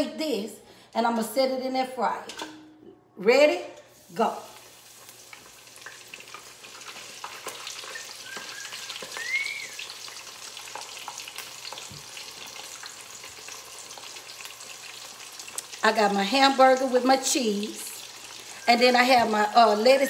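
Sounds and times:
hot oil sizzling and crackling: 4.0 - 20.0.

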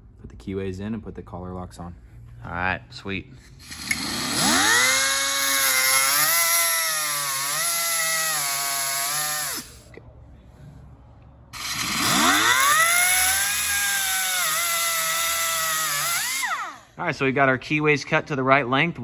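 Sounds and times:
abrasive wheel cutting steel: 3.6 - 9.8, 11.6 - 17.0.

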